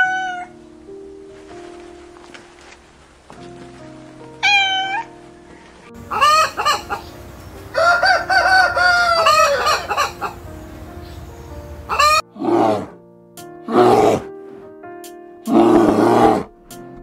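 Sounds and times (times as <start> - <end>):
hens clucking: 6.0 - 11.2, 11.8 - 12.2
rooster crowing: 7.6 - 10.4.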